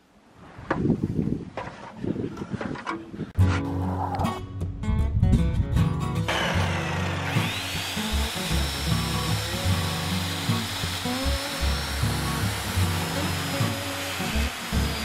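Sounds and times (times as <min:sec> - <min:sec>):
background music: 0:03.4 - 0:15.0
circular saw cutting wood: 0:06.3 - 0:15.0.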